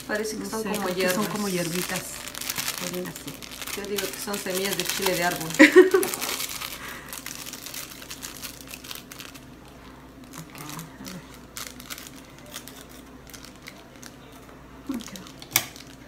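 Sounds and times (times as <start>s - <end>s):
sachets being torn and crinkled: 0.1s - 16.0s.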